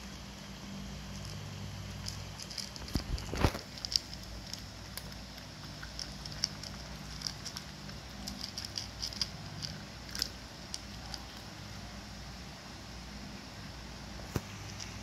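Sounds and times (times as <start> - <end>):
cats crunching dry kibble: 0.0 - 11.6.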